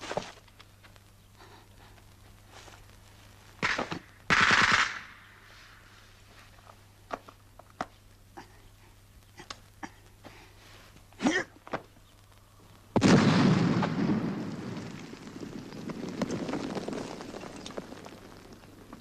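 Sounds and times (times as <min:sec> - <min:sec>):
loud rumbling explosion: 0:13.0 - 0:18.9.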